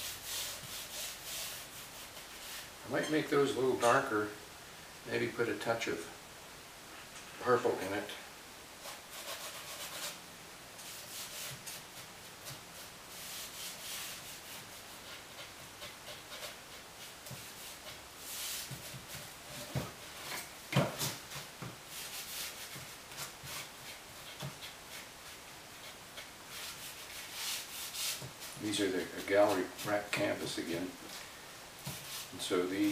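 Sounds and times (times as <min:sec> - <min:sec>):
sponge scrubbing on canvas: 0:00.0 - 0:02.7, 0:08.8 - 0:10.2, 0:10.8 - 0:30.1, 0:31.9 - 0:32.9.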